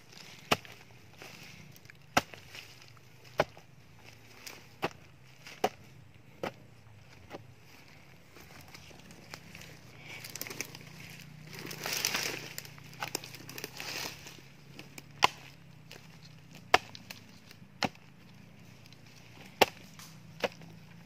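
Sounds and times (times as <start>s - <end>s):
dry leaves rustling: 0.0s - 6.4s, 7.0s - 21.0s
hoe chopping into soil: 0.2s - 6.6s, 11.6s - 18.1s, 18.9s - 21.0s.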